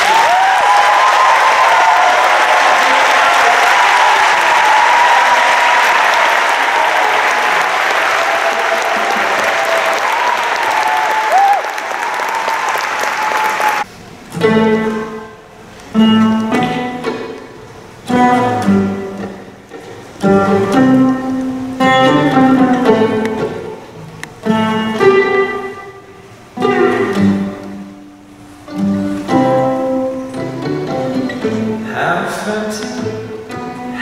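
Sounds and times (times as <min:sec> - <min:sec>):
applause: 0:00.0 - 0:13.9
violin plucked and bowed: 0:16.0 - 0:23.8, 0:24.4 - 0:26.0, 0:26.6 - 0:28.0, 0:28.7 - 0:32.2, 0:32.8 - 0:34.0.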